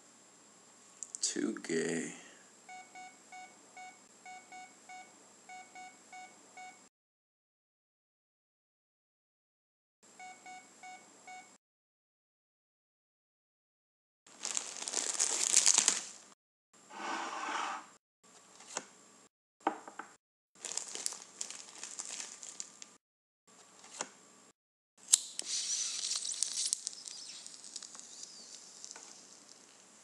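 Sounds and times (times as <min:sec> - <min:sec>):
dry plant matter crinkling: 0:14.3 - 0:16.2, 0:20.6 - 0:22.9, 0:25.5 - 0:29.8
lighter flame hissing: 0:25.1 - 0:29.6.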